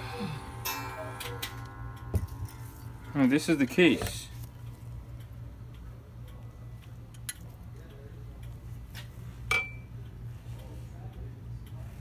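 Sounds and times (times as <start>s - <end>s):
low steady hum: 0.0s - 12.0s
metallic tap with high ring: 0.6s - 4.2s, 9.5s - 9.9s.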